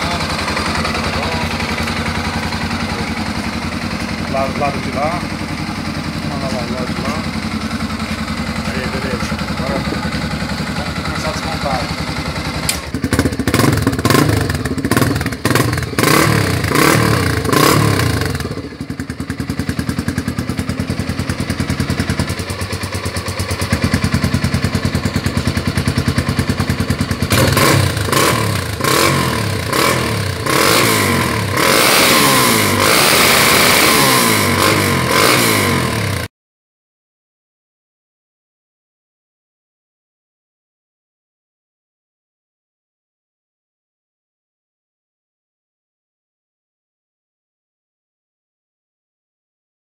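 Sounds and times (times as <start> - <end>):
motorcycle engine revving and idling: 0.0 - 36.3.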